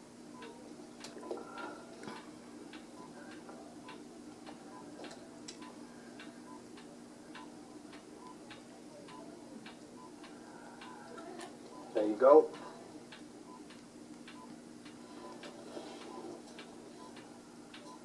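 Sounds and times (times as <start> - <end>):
steady low hum: 0.0 - 18.0
patient monitor beeping: 0.3 - 18.0.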